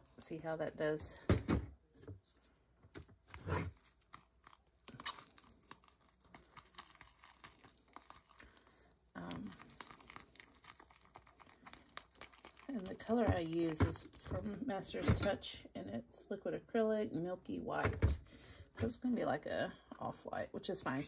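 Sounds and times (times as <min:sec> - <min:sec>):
paste scraping and squishing in tub: 0:03.3 - 0:15.2.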